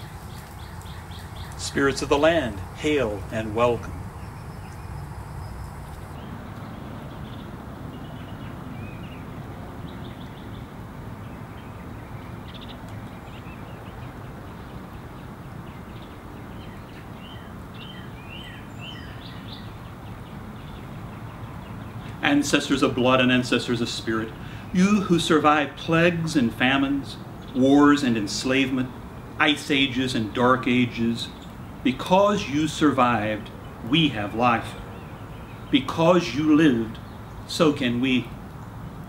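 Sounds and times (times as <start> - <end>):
low outdoor rumble: 0.0 - 13.8
small birds chirping: 0.0 - 39.0.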